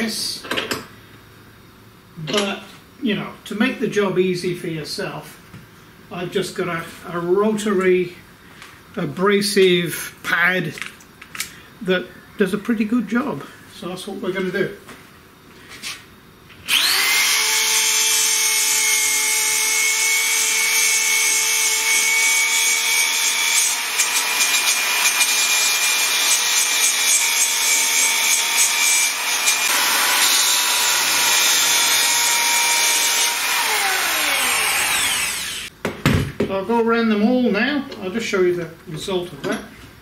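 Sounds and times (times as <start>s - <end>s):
electric drill whining: 16.7s - 35.7s.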